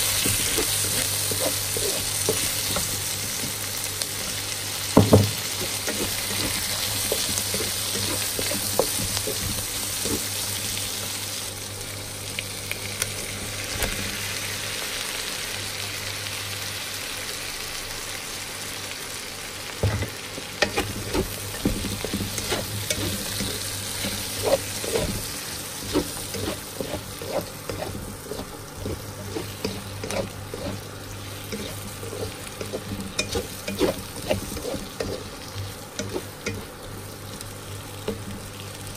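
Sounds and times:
wooden spatula scraping a pan: 0.0 - 3.6, 5.6 - 10.8, 20.6 - 36.8
food sizzling in a hot pan: 0.0 - 38.9.

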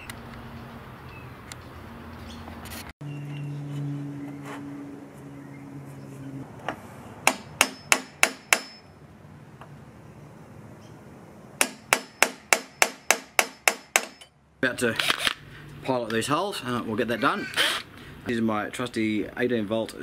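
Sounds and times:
hammer tapping punch on metal: 7.2 - 8.8, 11.6 - 14.3.

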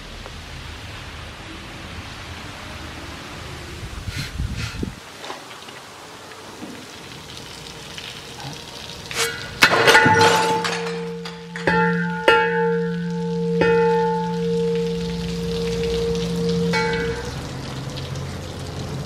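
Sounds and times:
liquid trickling and dripping: 0.2 - 19.0
metal pipe ringing: 9.2 - 17.6
glass bottles smashing: 9.5 - 13.0.

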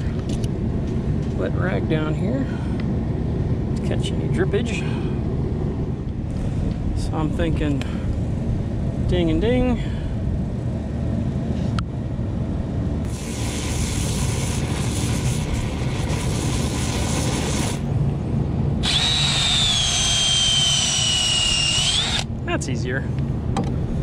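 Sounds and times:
torch flame hissing: 13.0 - 17.9
cordless drill motor whining: 18.8 - 22.3.

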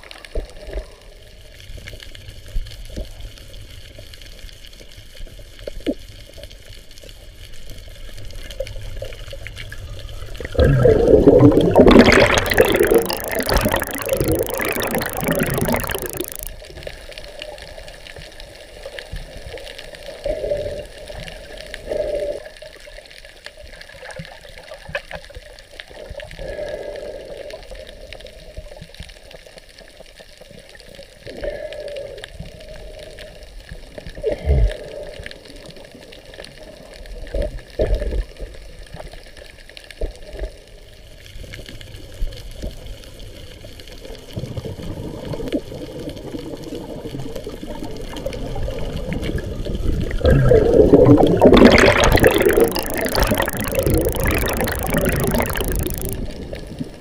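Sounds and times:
bubbling and gurgling: 7.8 - 16.7, 44.2 - 57.0.

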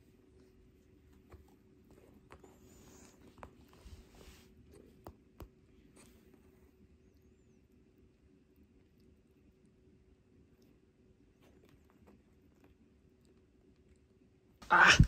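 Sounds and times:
faint fabric rustling: 0.0 - 5.1.

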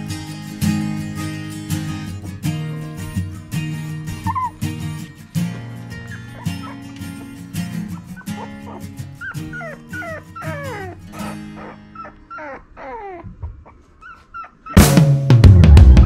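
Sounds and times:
puppies whimpering: 4.0 - 5.1, 5.9 - 14.8
loud rock music: 14.8 - 16.0.

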